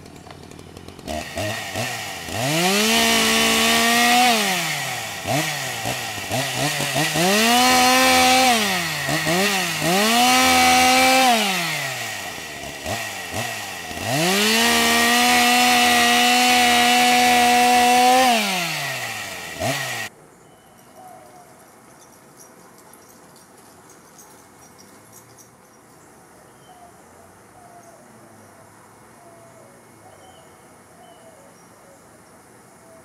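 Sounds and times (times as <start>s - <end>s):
chainsaw revving: 0.0s - 20.1s.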